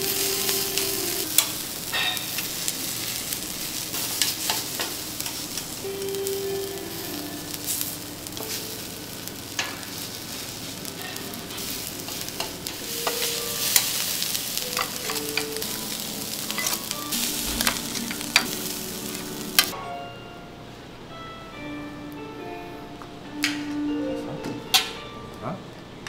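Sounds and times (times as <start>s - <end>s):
fried rice sizzling on a griddle: 0.0s - 19.8s
spatula clinking on griddle: 1.4s - 2.5s.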